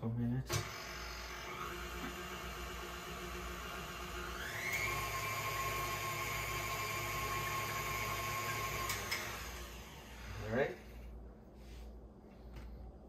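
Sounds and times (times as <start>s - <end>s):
stand mixer motor whining: 0.7s - 10.3s.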